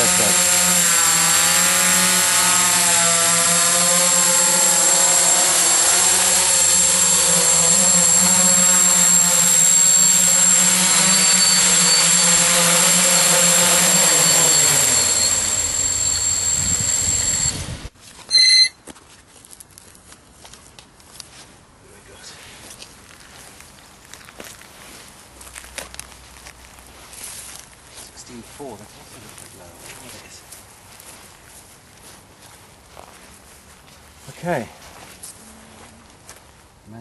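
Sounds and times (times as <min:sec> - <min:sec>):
drone motors humming: 0:00.0 - 0:18.6
short loud beep: 0:13.2 - 0:18.8.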